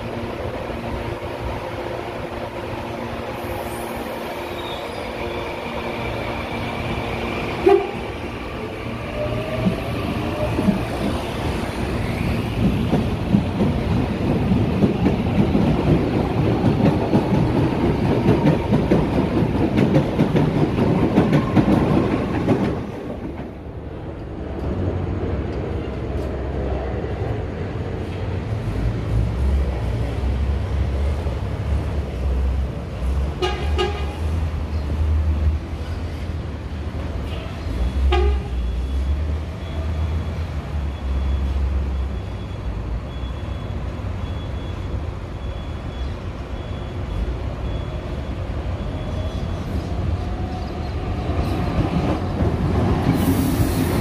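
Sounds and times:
train wheel and rail noise: 0.0s - 54.0s
train horn blasts: 7.5s - 8.1s, 33.4s - 34.2s, 38.1s - 38.6s.

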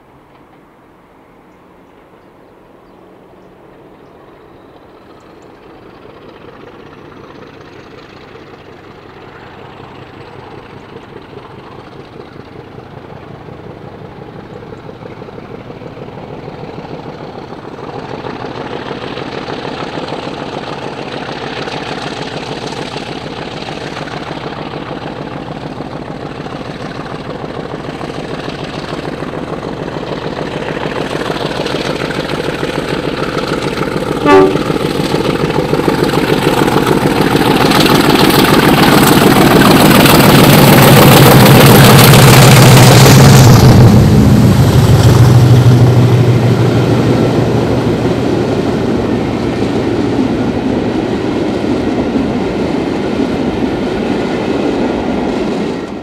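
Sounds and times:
diesel locomotive passing: 0.0s - 56.0s
train horn toot: 34.2s - 34.9s.

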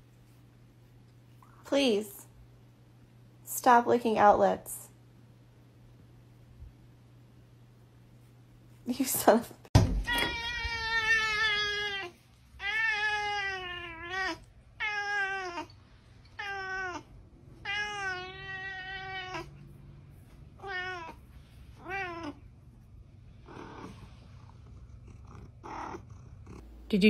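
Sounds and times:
cat meowing: 10.1s - 19.6s, 20.6s - 21.2s.

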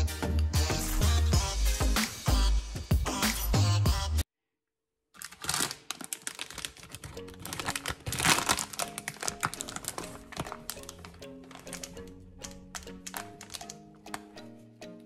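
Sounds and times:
background music: 0.0s - 4.3s, 6.3s - 15.0s
packet crinkling and rustling: 5.1s - 14.4s.

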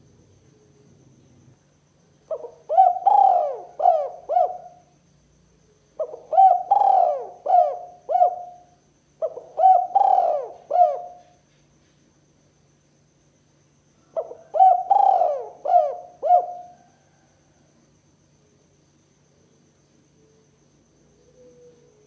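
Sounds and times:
dove cooing: 2.3s - 4.8s, 6.0s - 11.4s, 14.1s - 17.2s, 21.1s - 22.0s.

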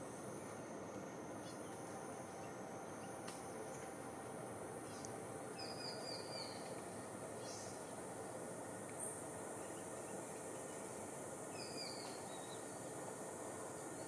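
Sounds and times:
high insect drone: 0.0s - 14.0s
steady forest hiss: 0.0s - 14.0s
bird chirping: 5.6s - 6.6s.

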